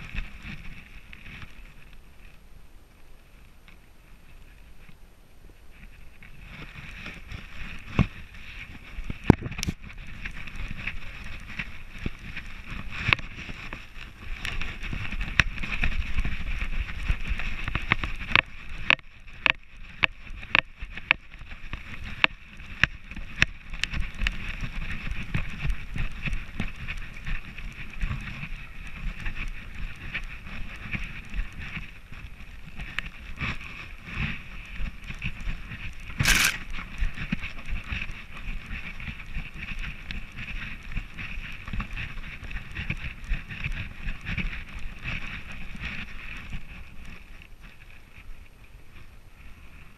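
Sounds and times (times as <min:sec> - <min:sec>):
wind rumble on microphone: 0:00.0 - 0:49.9
camera mount clicks and knocks: 0:36.2 - 0:36.6.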